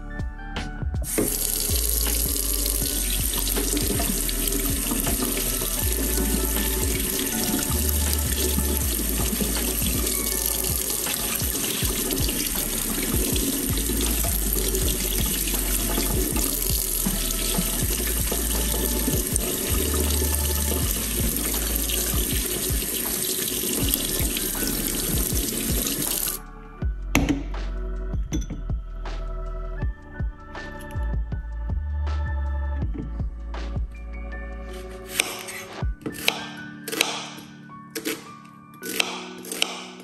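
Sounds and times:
tap water running into steel sink: 1.1 - 26.4.

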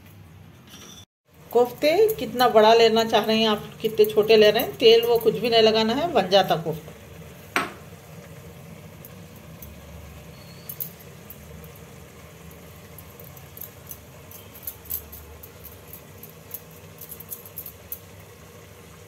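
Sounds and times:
bangles clicking: 1.6 - 5.6, 9.0 - 18.1.

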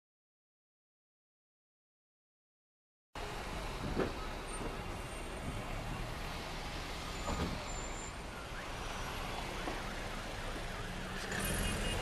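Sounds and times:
road traffic noise: 3.2 - 12.0
faint siren wailing: 6.8 - 12.0.

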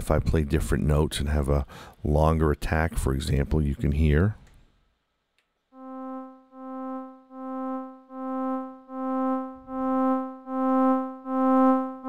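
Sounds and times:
synthesizer notes: 5.8 - 12.0.

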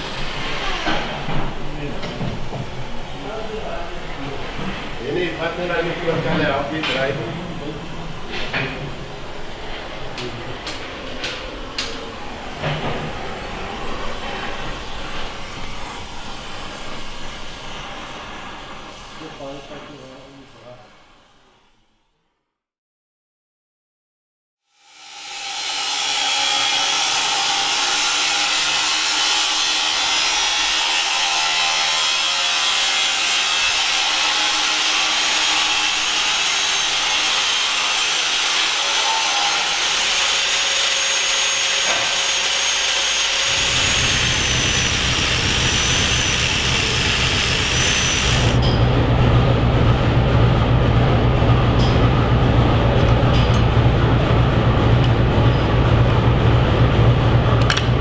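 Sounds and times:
power tool grinding hiss: 24.7 - 29.5, 32.0 - 48.6
low machine hum: 43.3 - 58.0.

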